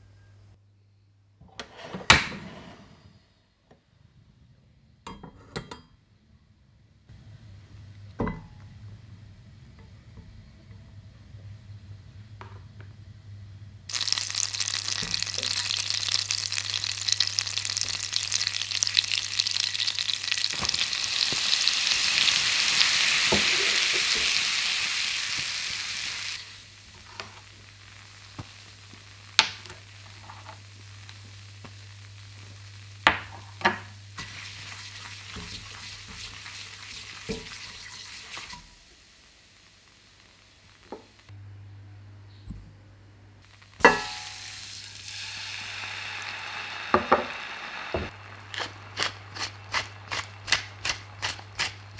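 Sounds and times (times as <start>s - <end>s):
butter sizzling in a saucepan: 13.9s - 41.3s, 43.4s - 51.9s.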